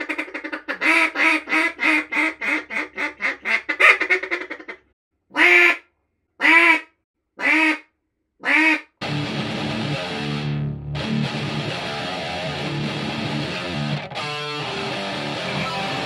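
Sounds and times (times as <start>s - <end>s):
duck call quacks: 0.0s - 5.8s, 6.4s - 8.9s
guitar music: 9.0s - 16.0s.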